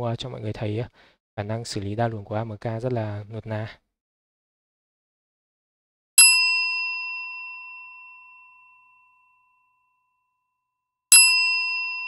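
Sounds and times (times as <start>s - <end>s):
high bell-like ding: 6.2s - 10.0s, 11.1s - 12.0s.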